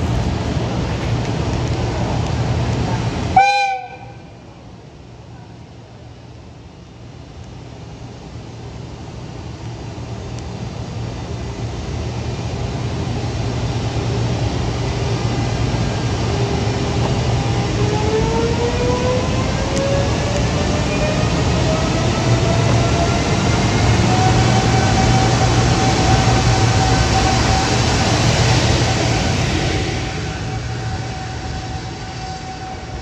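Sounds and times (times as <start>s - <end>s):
electric locomotive running: 9.2s - 33.0s.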